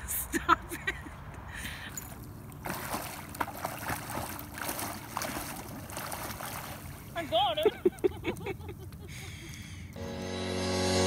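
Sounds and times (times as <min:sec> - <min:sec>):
swimmer kicking water: 0:02.1 - 0:08.6.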